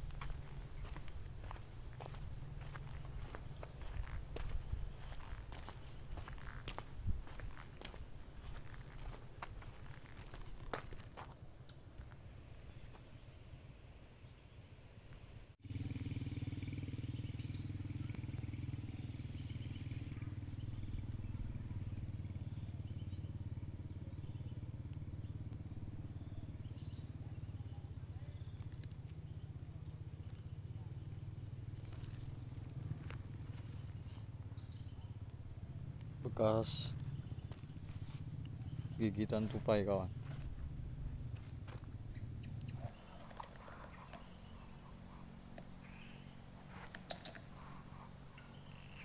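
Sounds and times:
insects chirring: 0.0s - 49.0s.

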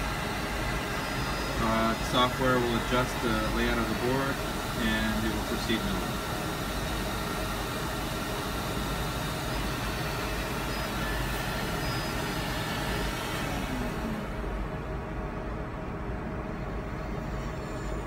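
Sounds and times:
milling machine hissing: 0.0s - 14.9s
faint short whines: 9.3s - 14.5s, 16.8s - 18.0s.

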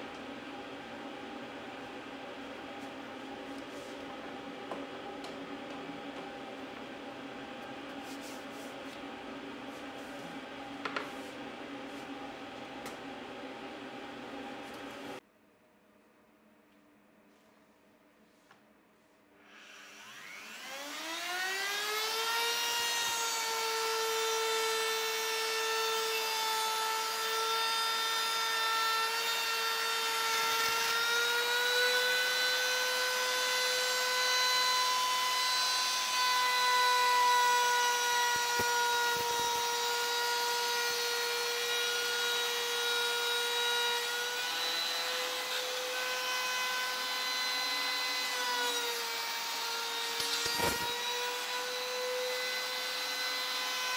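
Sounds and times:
electric router whine: 19.4s - 53.9s.

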